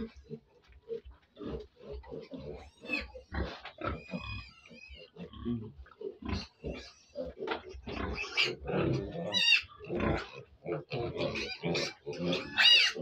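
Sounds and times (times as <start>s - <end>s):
pigs grunting: 0.0s - 13.0s
piglet squealing: 9.3s - 9.7s, 11.3s - 13.0s.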